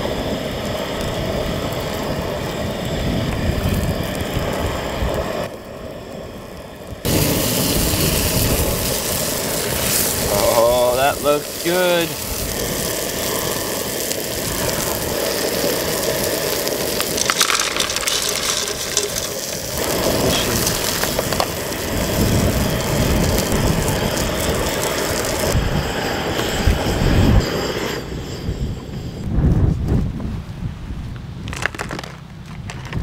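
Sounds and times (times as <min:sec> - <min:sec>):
fish sizzling in oil: 0:00.0 - 0:27.8
gas burner hiss: 0:00.0 - 0:29.6.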